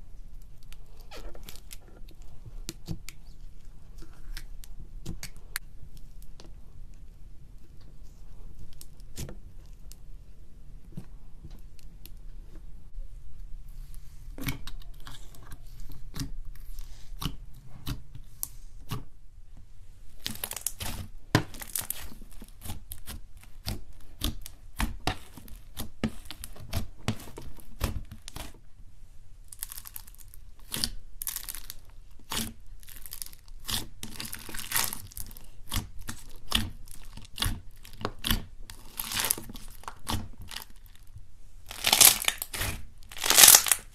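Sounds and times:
hands squishing slime: 0:20.1 - 0:28.6, 0:29.4 - 0:43.9
crackling and popping air pockets: 0:29.5 - 0:43.9.

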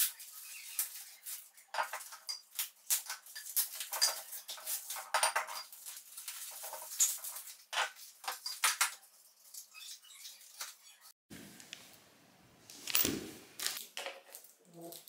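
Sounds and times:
metal tubes clinking and knocking: 0:01.7 - 0:09.0.

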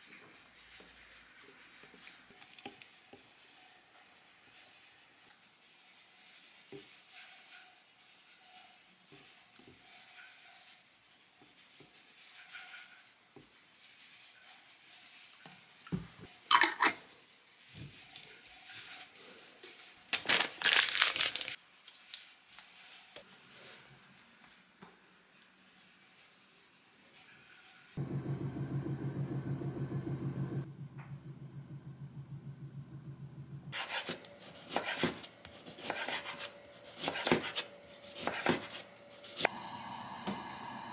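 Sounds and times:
sauce pouring into a jar: 0:02.3 - 0:03.0.

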